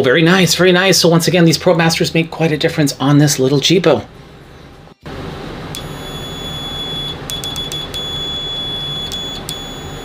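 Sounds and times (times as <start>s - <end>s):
multimeter continuity beep: 5.7s - 10.0s
probe tips clicking: 7.3s - 8.1s, 9.0s - 9.8s.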